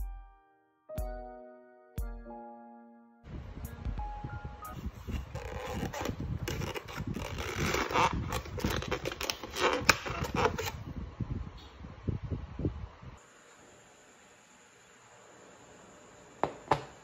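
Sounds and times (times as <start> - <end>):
foam box scraping and creaking: 4.8 - 10.8.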